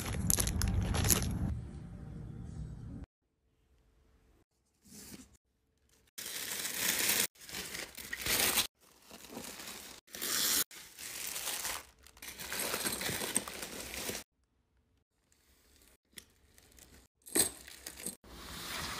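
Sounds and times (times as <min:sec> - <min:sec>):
tissue paper crinkling: 0:06.2 - 0:14.2.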